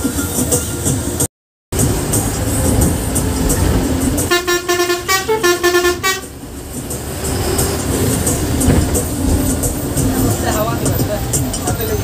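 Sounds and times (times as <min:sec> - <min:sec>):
bus engine rumbling: 0:00.0 - 0:12.0
bus horn pulsed notes: 0:03.6 - 0:06.4.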